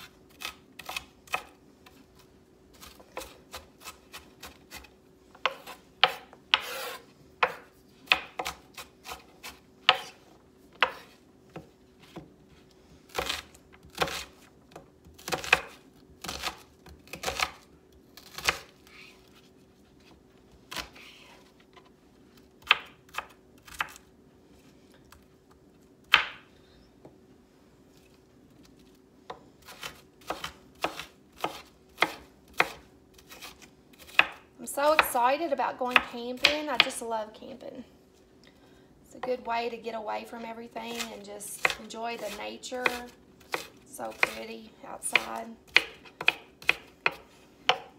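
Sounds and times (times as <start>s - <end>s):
knife chopping on wooden board: 2.8s - 10.2s, 10.8s - 12.3s, 26.1s - 26.4s, 29.3s - 34.4s, 41.0s - 44.4s, 45.1s - 47.9s.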